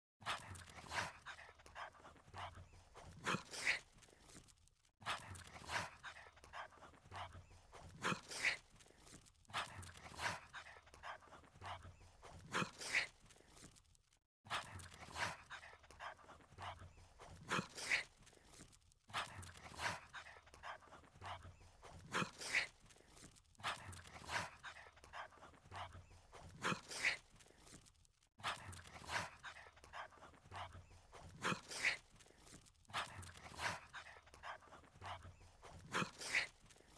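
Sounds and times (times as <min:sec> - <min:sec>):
dog sniffing: 0:14.5 - 0:36.9.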